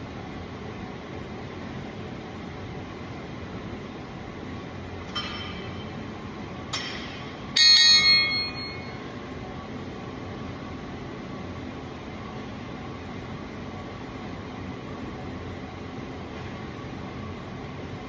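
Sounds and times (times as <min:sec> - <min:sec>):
barbell plates clinking: 0:05.1 - 0:05.9
barbell ringing clang: 0:05.1 - 0:05.9, 0:06.7 - 0:09.0.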